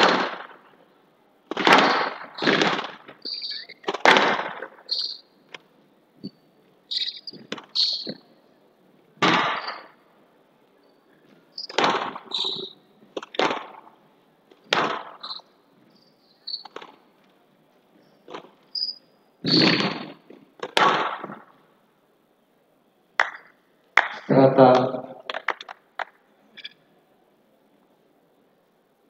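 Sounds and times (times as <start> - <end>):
shoes squeaking on court: 2.4 - 4.0, 4.7 - 5.3, 6.2 - 8.3, 11.2 - 13.5, 15.2 - 17.0, 18.0 - 20.3.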